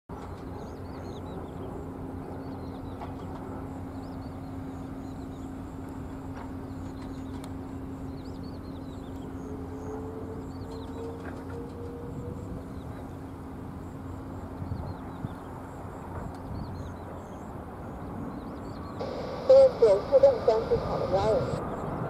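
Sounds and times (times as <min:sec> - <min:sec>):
distant engine drone: 0:00.1 - 0:22.0
jet airliner engine: 0:00.1 - 0:22.0
small birds chirping: 0:00.2 - 0:11.5.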